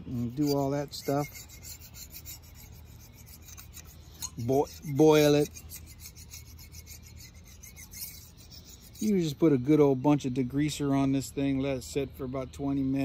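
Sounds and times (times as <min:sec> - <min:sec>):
razor blade scraping metal: 0:00.0 - 0:09.5.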